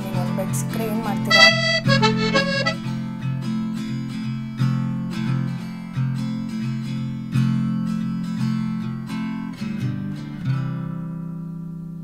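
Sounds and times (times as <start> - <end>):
acoustic guitar strumming chords: 1.3 - 2.9.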